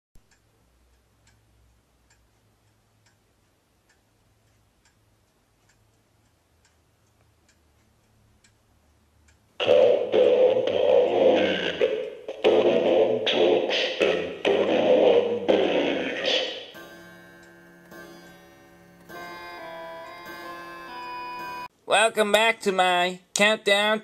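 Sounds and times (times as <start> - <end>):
clock ticking faintly: 0.2 - 11.3, 16.4 - 21.8.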